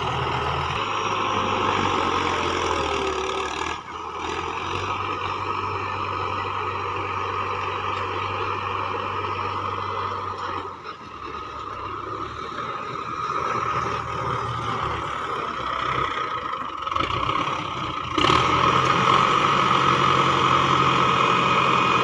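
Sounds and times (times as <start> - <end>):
tractor diesel engine running: 0.0 - 22.0.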